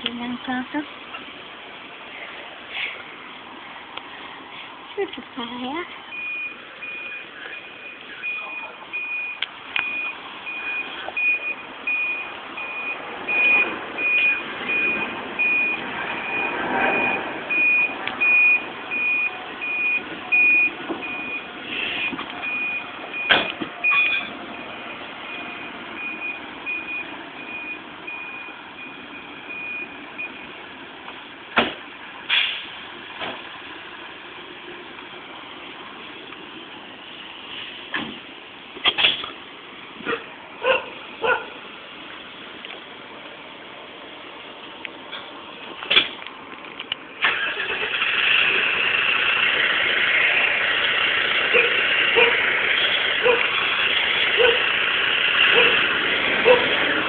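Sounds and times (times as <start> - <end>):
truck engine running: 0.0 - 57.0
reversing alarm beeping: 6.1 - 30.6.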